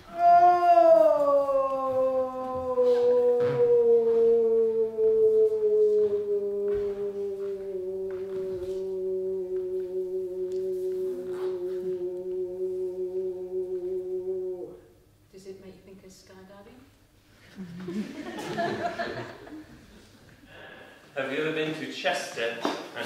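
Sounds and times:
person singing long sliding note: 0.0s - 15.1s.

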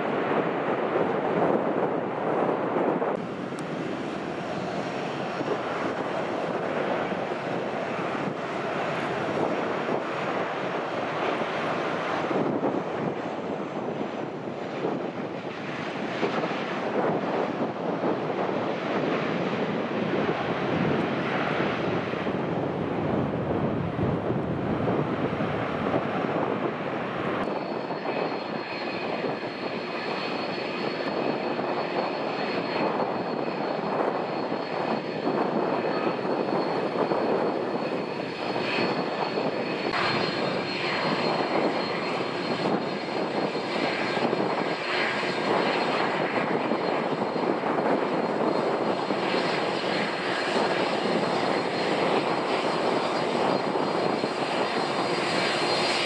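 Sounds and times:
jet engines roaring with whine: 0.0s - 56.0s.

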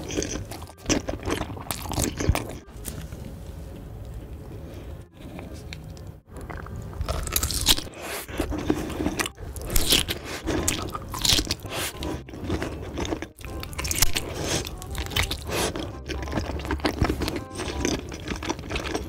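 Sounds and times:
wet chewing: 0.0s - 3.1s, 5.2s - 19.0s.

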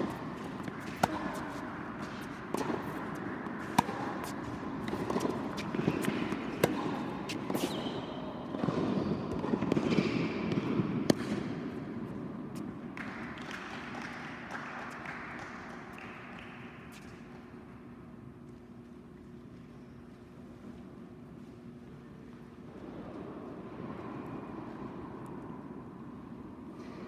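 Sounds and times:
rackets striking tennis ball: 0.0s - 11.8s
tennis ball bouncing: 0.0s - 12.7s.

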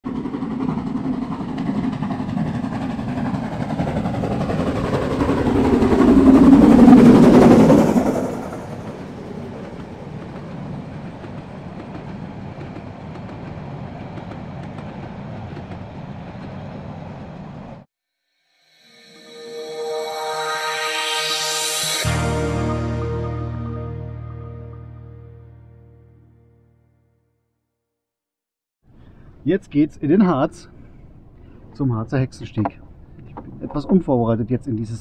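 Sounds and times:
steam train passing: 0.0s - 17.9s, 18.7s - 25.0s
coaches rolling on rails: 0.1s - 17.8s.

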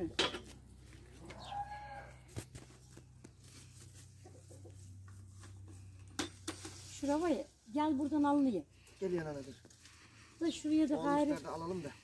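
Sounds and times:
rooster crowing: 1.2s - 2.3s.

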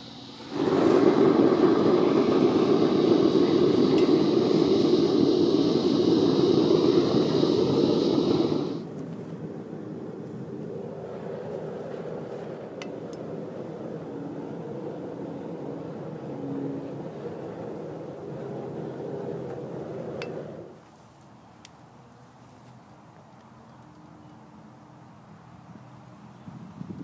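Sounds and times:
propane burner roaring: 0.0s - 20.9s.

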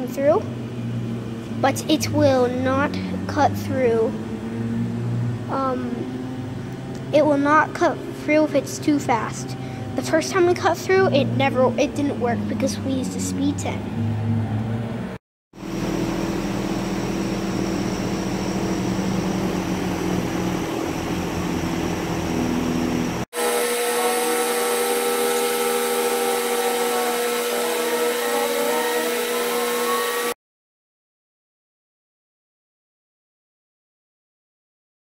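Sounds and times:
machine hum with pitch glides: 0.0s - 30.4s
laser cutter whirring: 15.6s - 30.4s.

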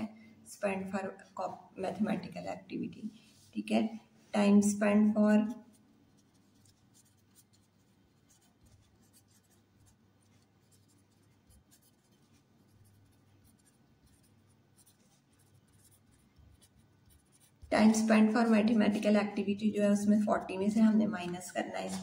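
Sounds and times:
pen scratching handwriting: 5.2s - 22.0s.

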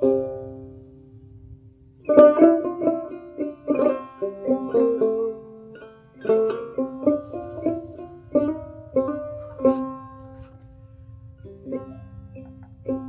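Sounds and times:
plucked string folk melody: 0.0s - 13.0s.

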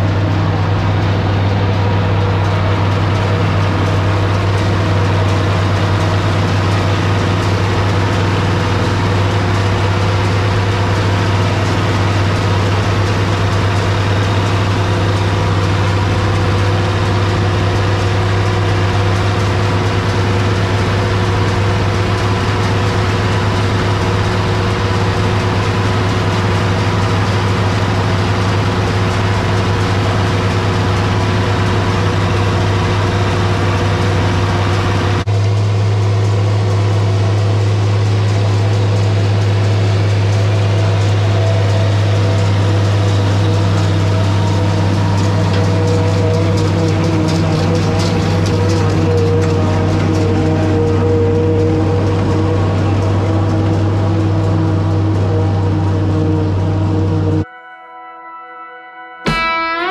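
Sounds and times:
tractor diesel engine under load: 0.0s - 57.5s
forage harvester chopping: 38.0s - 55.7s.

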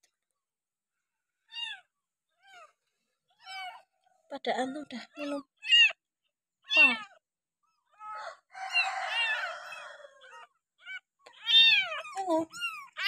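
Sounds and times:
kittens mewing: 6.7s - 7.2s, 7.9s - 13.0s.

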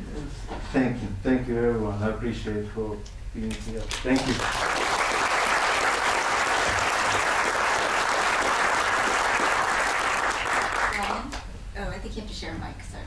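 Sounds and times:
audience applauding: 3.9s - 11.4s.

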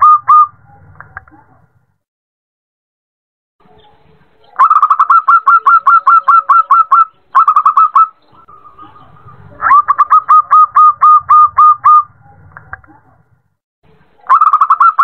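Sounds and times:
dove calling in clipped notes: 0.0s - 1.3s, 3.8s - 12.9s, 14.2s - 15.0s.

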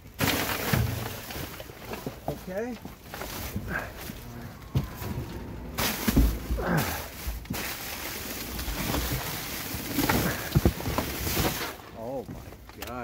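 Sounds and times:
handling bumps: 0.0s - 7.9s
plastic bags rustling: 0.0s - 13.0s.

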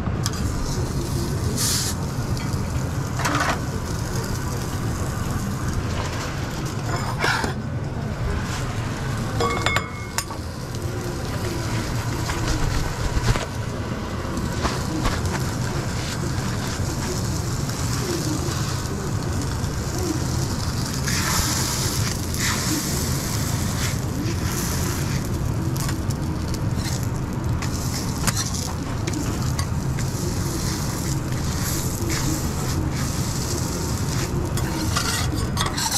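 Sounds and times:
steady low hum: 0.0s - 35.9s
burger patties sizzling on griddle: 0.2s - 35.9s
metal spatula scraping steel plate: 34.6s - 35.9s.

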